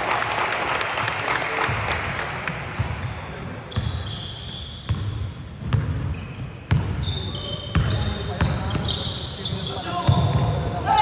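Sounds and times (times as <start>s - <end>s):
shoes squeaking on floor: 2.8s - 11.0s
basketball bouncing: 4.9s - 7.0s.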